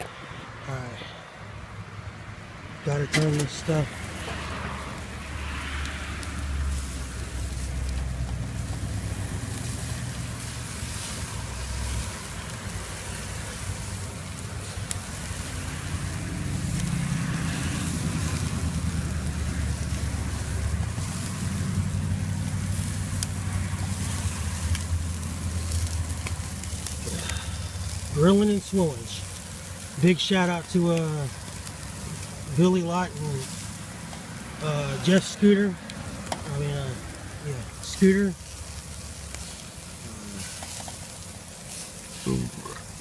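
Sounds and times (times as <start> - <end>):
meat sizzling on a grill: 1.6 - 43.0
crackles and pops: 4.2 - 43.0.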